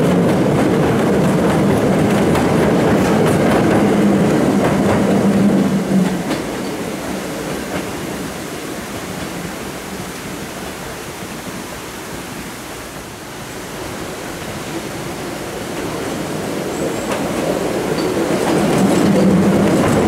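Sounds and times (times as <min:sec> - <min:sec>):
electric train rumble: 0:00.0 - 0:20.0
steady rushing noise: 0:00.0 - 0:20.0.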